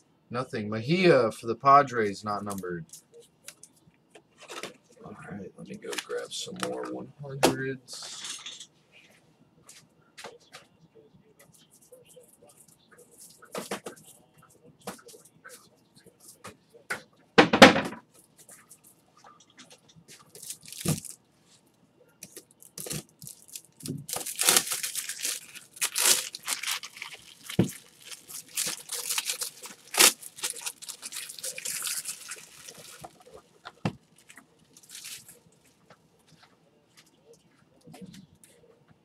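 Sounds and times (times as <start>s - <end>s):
plastic packaging crinkling and tearing: 20.2s - 21.2s, 22.2s - 35.7s.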